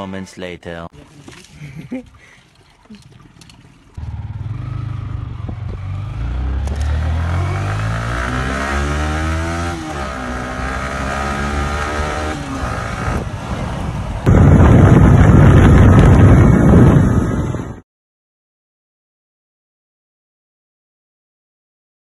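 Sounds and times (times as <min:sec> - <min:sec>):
motorcycle engine accelerating: 0:04.0 - 0:17.8
rush of wind and road noise: 0:04.0 - 0:17.8.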